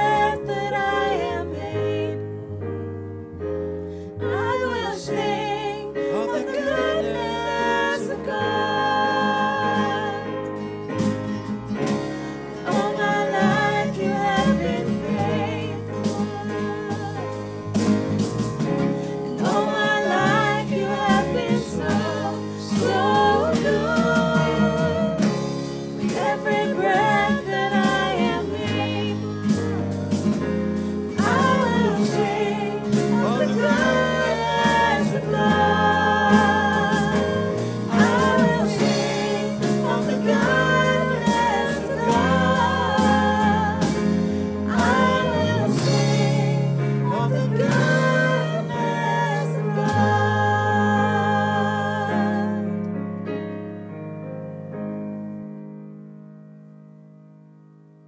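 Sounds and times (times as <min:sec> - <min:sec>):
woman singing: 0:00.0 - 0:02.2, 0:04.2 - 0:10.5, 0:12.6 - 0:17.4, 0:19.2 - 0:25.4, 0:26.0 - 0:30.0, 0:31.2 - 0:52.8
worship band playing: 0:00.0 - 0:53.5
acoustic guitar: 0:00.0 - 0:56.1
piano: 0:00.0 - 0:58.0
man singing: 0:06.0 - 0:09.8, 0:31.2 - 0:37.2, 0:44.8 - 0:48.8
drum kit: 0:06.0 - 0:51.6.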